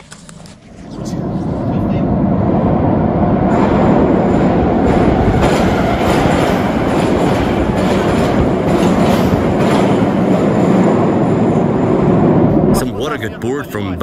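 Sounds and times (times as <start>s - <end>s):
subway train rumble: 0.0s - 14.0s
wheels clacking over rail joints: 3.5s - 12.8s.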